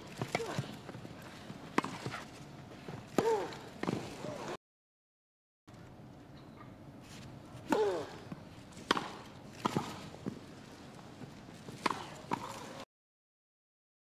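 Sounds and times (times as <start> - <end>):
tennis ball hits: 1.7 - 2.3, 8.8 - 10.4, 11.7 - 12.8.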